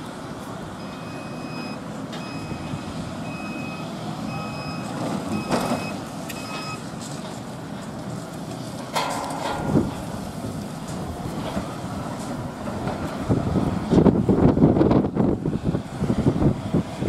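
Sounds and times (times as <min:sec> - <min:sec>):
forklift running noise: 0:00.0 - 0:17.0
forklift warning beeps: 0:00.8 - 0:06.9.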